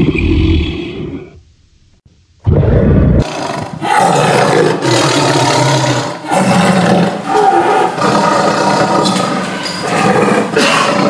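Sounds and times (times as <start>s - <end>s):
tiger roaring: 2.5s - 11.0s.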